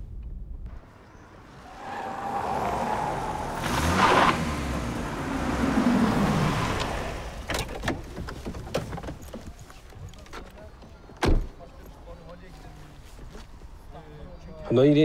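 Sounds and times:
car driving past: 0.9 - 7.6.

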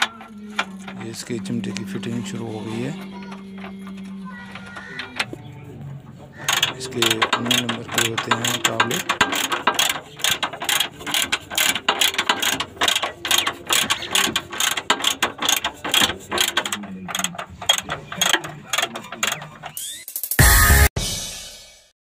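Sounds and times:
ratchet wrench clicking: 6.5 - 20.0.

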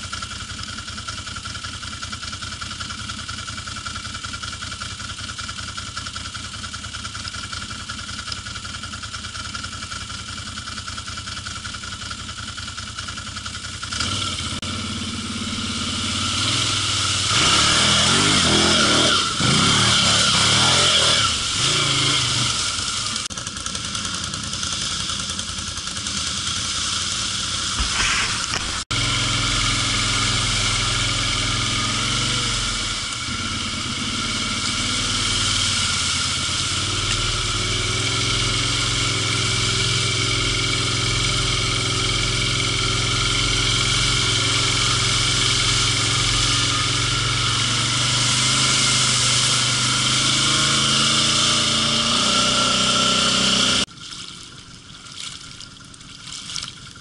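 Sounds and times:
atv engine running under load: 0.0 - 57.0
water spray rushing: 15.3 - 23.3, 24.4 - 54.4.

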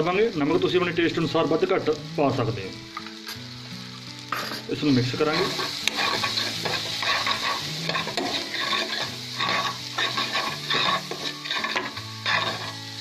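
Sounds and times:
frying sizzle: 0.0 - 13.0
metal spoon scraping pan: 5.3 - 12.8.

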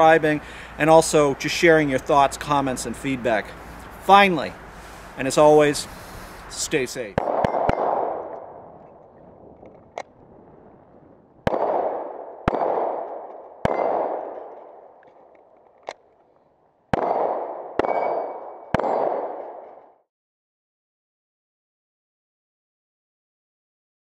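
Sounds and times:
handgun shots echoing: 7.2 - 8.6, 11.5 - 16.0, 16.9 - 19.9.

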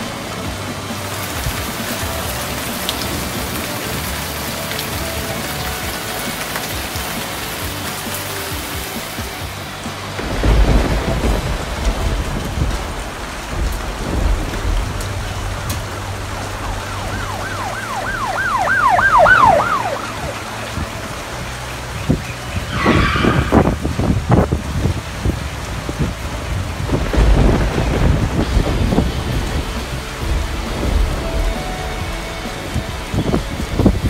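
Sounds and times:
heavy rain pouring: 0.0 - 34.0
thunder rumbling: 0.0 - 34.0
warbling high tone: 16.6 - 20.9.

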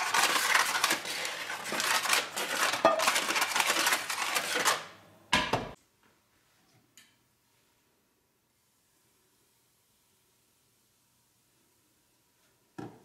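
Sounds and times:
butter scraping in frying pan: 0.0 - 4.9
paper crinkling: 0.0 - 4.9.

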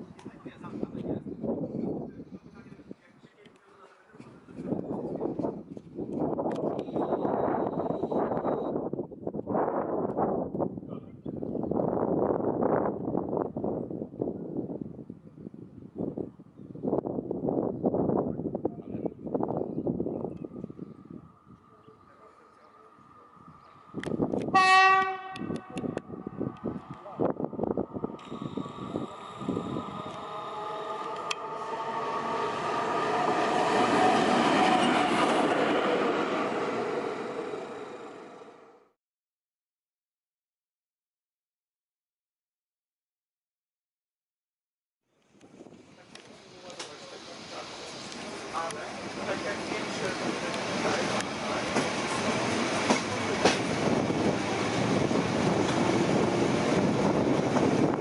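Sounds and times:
locomotive passing on rails: 16.9 - 38.9, 45.4 - 58.0.

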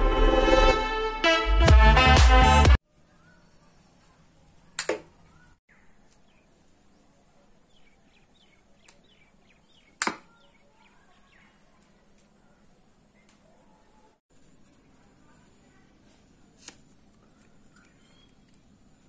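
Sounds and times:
electronic music: 0.0 - 2.8
faint bird chirps: 2.9 - 15.8, 17.2 - 18.6.

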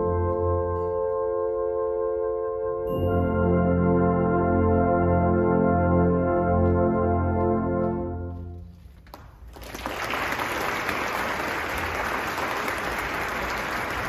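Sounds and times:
brass band held chord: 0.0 - 8.6
audience applause: 9.0 - 14.0.

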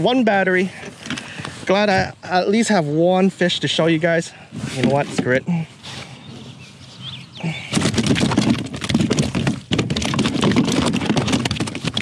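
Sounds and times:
fish knocking against kayak hull: 7.6 - 12.0.

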